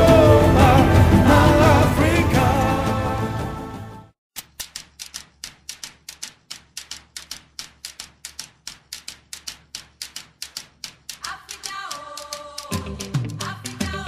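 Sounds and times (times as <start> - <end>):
sharp ticking clicks: 4.4 - 14.0.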